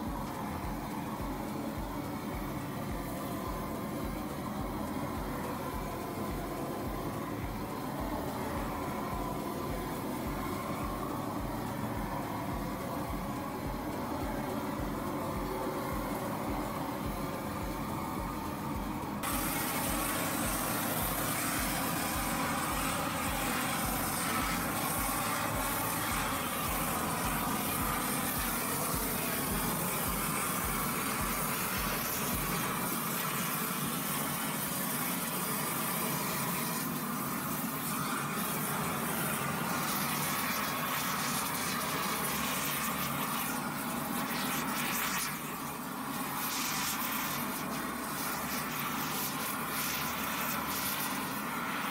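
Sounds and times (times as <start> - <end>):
low rhythmic throb: 0.0 - 33.5
torch hissing: 0.0 - 51.9.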